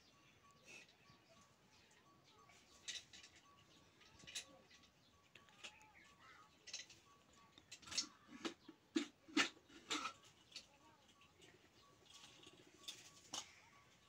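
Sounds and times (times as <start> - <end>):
metal kettle and tongs clinking: 2.7 - 4.8, 5.6 - 13.7.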